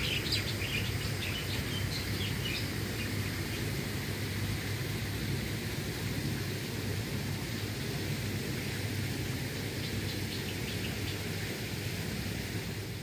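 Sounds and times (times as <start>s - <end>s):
rushing outdoor noise: 0.0s - 13.0s.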